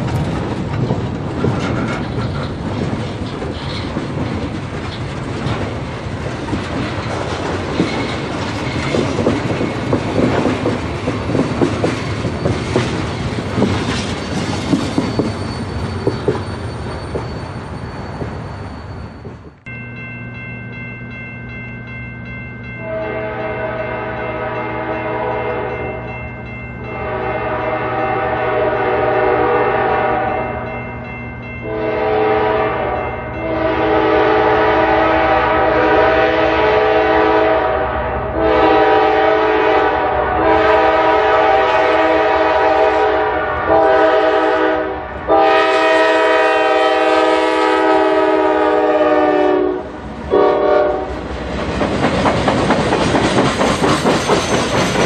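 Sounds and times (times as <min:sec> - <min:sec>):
wheels clattering over rail joints: 0:00.0 - 0:18.5, 0:51.3 - 0:55.0
locomotive air horn blasts: 0:22.8 - 0:25.8, 0:26.9 - 0:30.7, 0:31.6 - 0:51.1.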